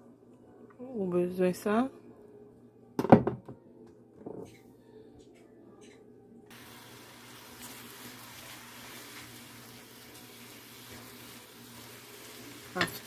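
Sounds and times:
carrot sizzling in frying pan: 0:06.5 - 0:13.0.

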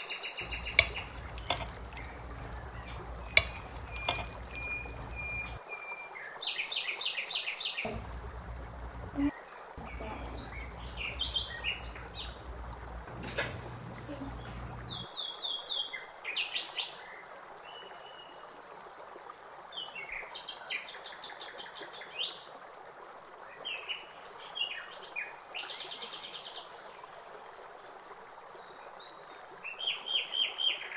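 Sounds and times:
low hum: 0:00.4 - 0:05.6, 0:07.9 - 0:15.1
small birds chirping: 0:00.4 - 0:05.6, 0:07.8 - 0:15.1.

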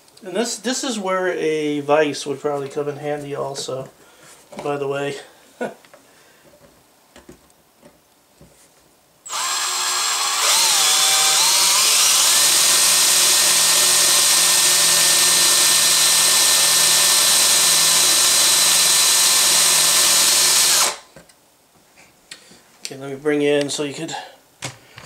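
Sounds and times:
cordless drill boring into metal: 0:09.3 - 0:21.0.

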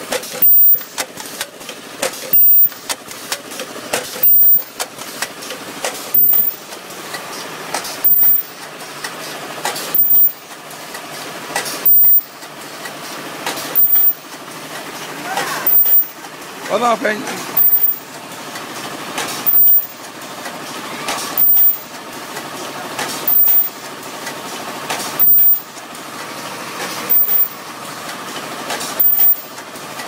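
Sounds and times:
steady machine noise: 0:00.0 - 0:30.0
high-pitched welding screech: 0:13.8 - 0:14.2, 0:15.5 - 0:16.1, 0:23.3 - 0:23.7.

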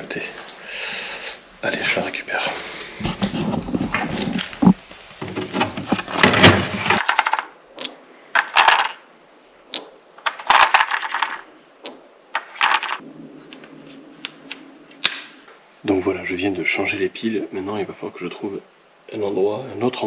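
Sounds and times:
rustling handling noise: 0:02.4 - 0:09.0, 0:10.2 - 0:14.6
batteries clinking and rattling: 0:07.0 - 0:07.5, 0:08.4 - 0:09.0, 0:10.2 - 0:11.4, 0:12.4 - 0:13.0.

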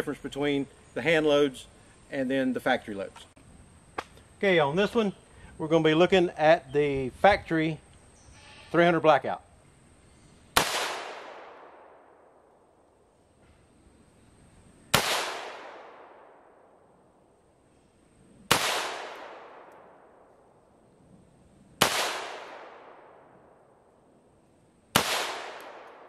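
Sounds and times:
rifle shots: 0:10.6 - 0:12.4, 0:14.9 - 0:16.7, 0:18.5 - 0:20.4, 0:21.8 - 0:23.4, 0:24.9 - 0:26.0.

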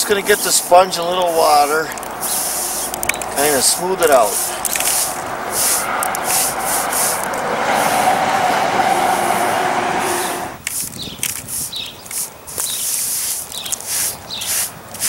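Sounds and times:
steady rushing noise: 0:00.0 - 0:15.0
sponge wiping cement: 0:00.2 - 0:08.3, 0:11.5 - 0:15.0.

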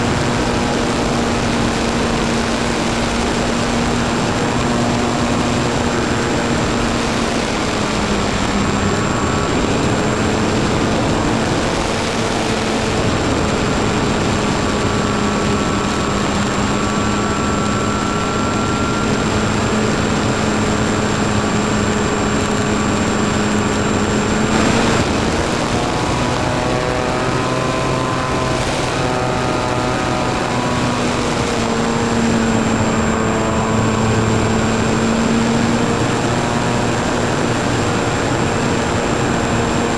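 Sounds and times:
faint high whine: 0:00.0 - 0:39.8
model aircraft motor and propeller: 0:00.0 - 0:39.9
rush of air: 0:23.8 - 0:33.1.

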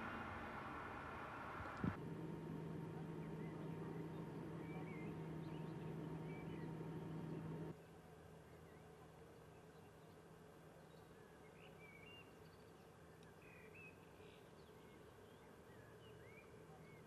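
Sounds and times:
engine humming: 0:00.0 - 0:07.8
birds chirping: 0:01.6 - 0:07.7.

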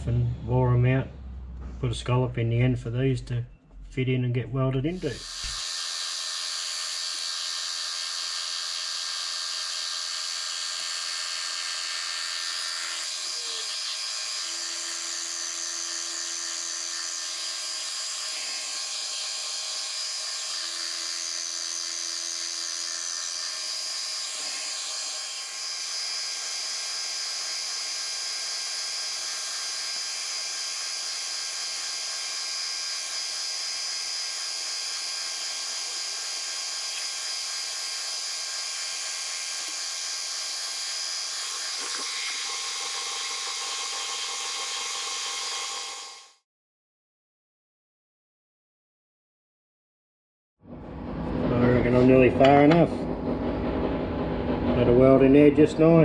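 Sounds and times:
milling machine whine: 0:05.0 - 0:46.4.

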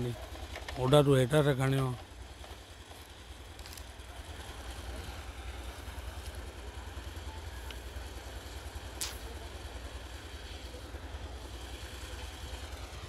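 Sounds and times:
low engine rumble: 0:00.0 - 0:13.0
sharp click: 0:09.0 - 0:09.3.

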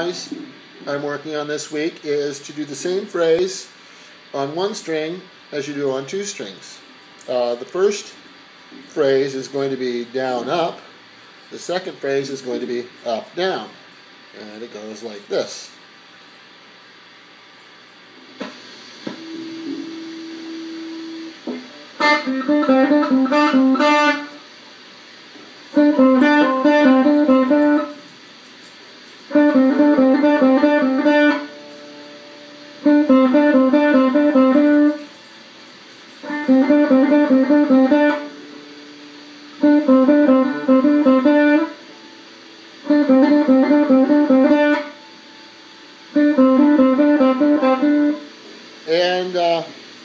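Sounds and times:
electric guitar rapid picked notes: 0:21.9 - 0:24.4, 0:25.8 - 0:28.0, 0:29.3 - 0:32.2, 0:32.8 - 0:35.1, 0:36.2 - 0:38.4, 0:39.6 - 0:41.8, 0:42.9 - 0:45.0, 0:46.2 - 0:48.2.

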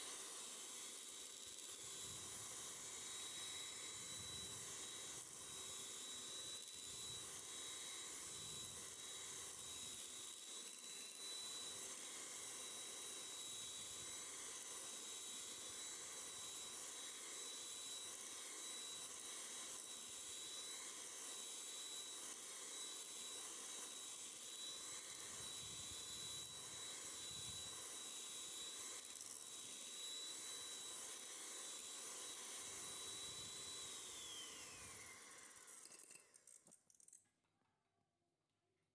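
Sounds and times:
electric hand mixer whining: 0:00.0 - 0:37.1.

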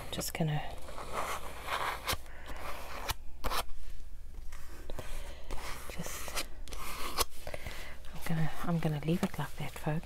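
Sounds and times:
paint scraping on paper: 0:00.8 - 0:03.6, 0:05.0 - 0:07.4.

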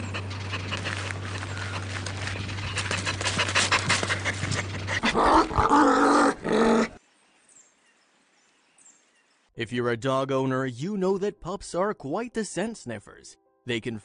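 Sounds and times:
dog panting: 0:00.0 - 0:05.1.

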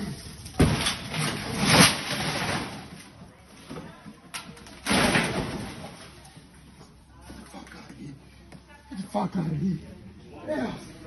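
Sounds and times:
shop goods crashing and clattering: 0:00.0 - 0:06.4.

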